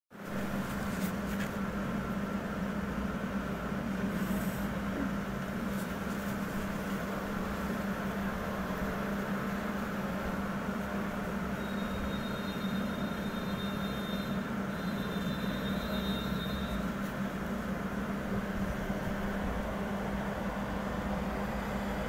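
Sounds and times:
low mechanical hum: 0:00.2 - 0:22.0.

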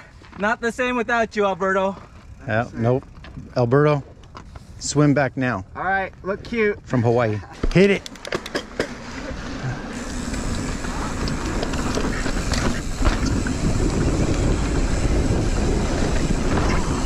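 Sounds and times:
bike clicks and rattles: 0:01.8 - 0:05.1, 0:06.2 - 0:17.0
tyres rolling on dirt: 0:07.6 - 0:17.0
wind rushing over microphone: 0:10.0 - 0:17.0.

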